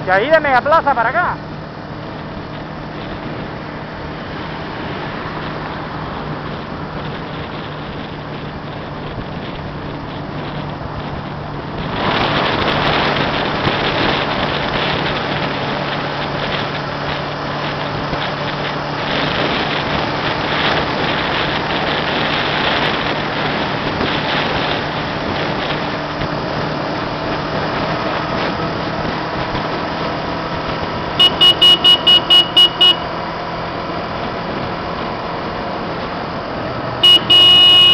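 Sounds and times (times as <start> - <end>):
low engine hum: 0.0 - 37.9
road and wind noise: 0.0 - 37.9.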